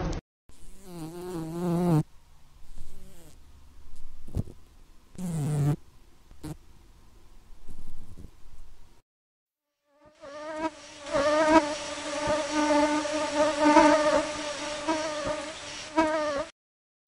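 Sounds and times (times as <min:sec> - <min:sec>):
flies buzzing: 0:00.5 - 0:05.8, 0:10.0 - 0:16.5.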